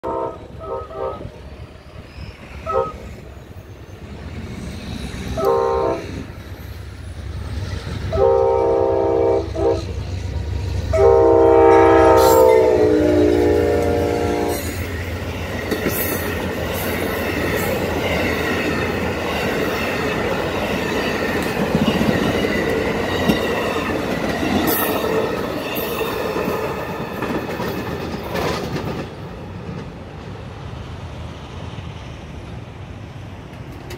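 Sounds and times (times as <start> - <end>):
train horn blasts: 0.0 - 1.3, 2.6 - 3.0, 5.4 - 6.3, 8.1 - 10.0, 10.9 - 14.7
train cars rumbling: 0.0 - 33.9.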